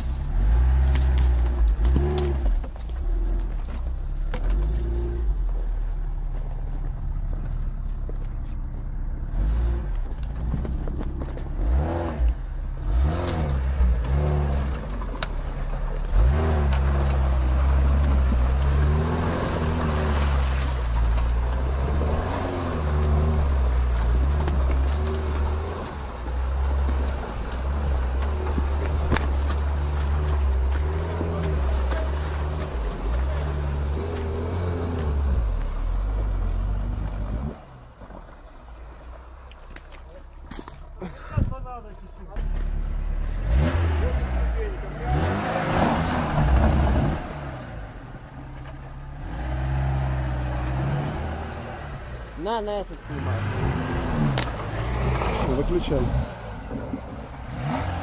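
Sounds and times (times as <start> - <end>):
engine revving under load: 9.2 - 38.0, 42.4 - 48.3, 49.0 - 58.0.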